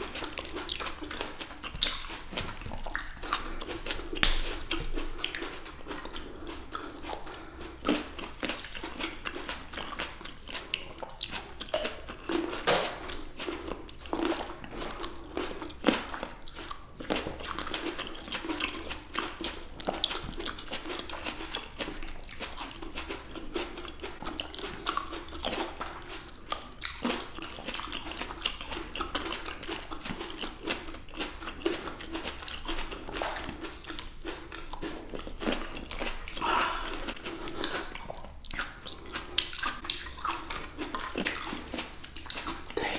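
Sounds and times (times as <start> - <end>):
chewing grapes: 0.0 - 42.9
juicy pops and crunches: 0.7 - 5.5, 11.6 - 13.3.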